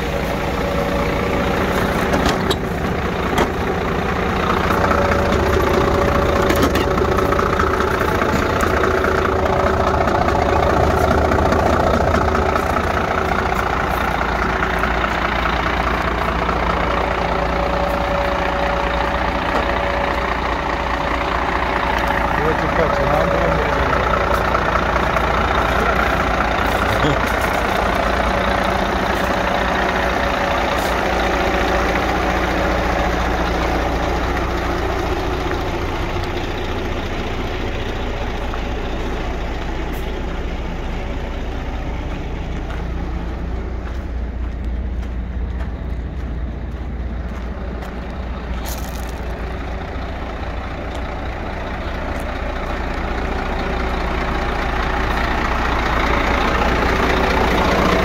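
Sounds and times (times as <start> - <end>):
diesel truck engine idling: 0.0 - 58.0.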